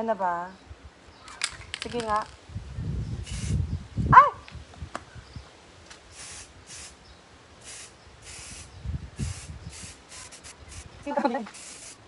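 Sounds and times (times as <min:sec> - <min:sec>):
spray paint can hissing: 0:03.2 - 0:03.6, 0:06.1 - 0:07.0, 0:07.6 - 0:12.0.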